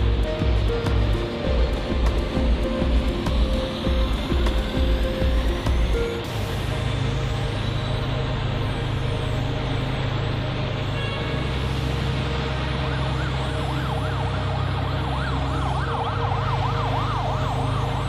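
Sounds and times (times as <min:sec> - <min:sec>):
steady low rumble: 0:00.0 - 0:18.0
emergency siren yelping: 0:12.6 - 0:18.0.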